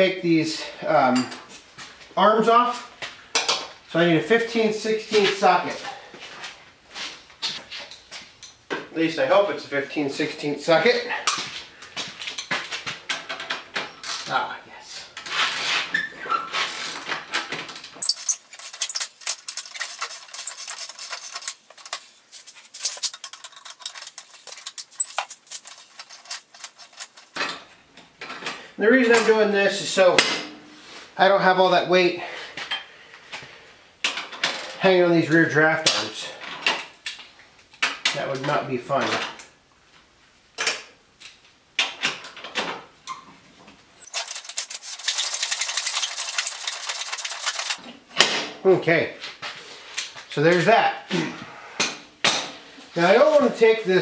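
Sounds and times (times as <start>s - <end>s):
tools clinking on metal: 18.0s - 27.6s
socket ratchet clicking rapidly: 44.1s - 47.8s.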